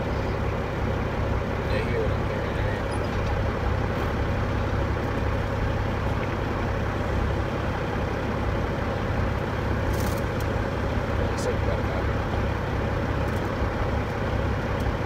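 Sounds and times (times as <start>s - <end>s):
diesel truck engine drone: 0.0s - 15.0s
rush of cab noise: 9.3s - 15.0s.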